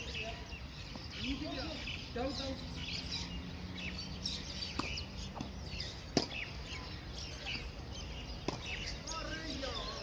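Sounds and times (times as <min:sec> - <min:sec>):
small birds chirping: 0:00.0 - 0:10.0
tennis ball struck and bouncing: 0:04.6 - 0:06.6, 0:08.4 - 0:09.0.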